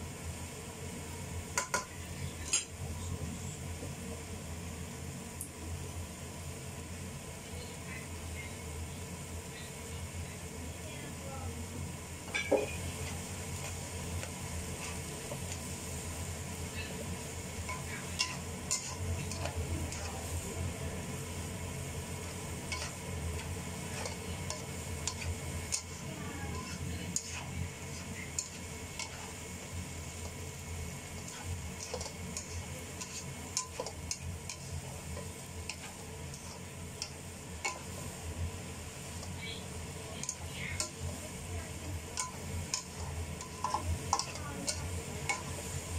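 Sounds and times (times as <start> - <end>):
stir-fry sizzling: 0.0 - 45.9
utensil scraping wok: 12.1 - 45.9.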